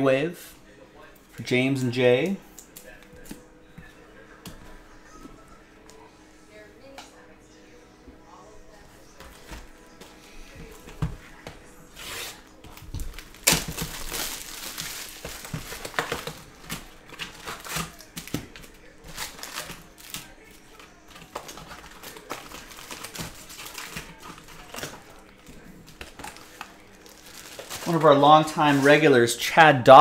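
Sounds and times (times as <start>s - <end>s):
plastic wrap tearing and crinkling: 11.9s - 29.1s
foil packs rustling: 11.9s - 29.4s.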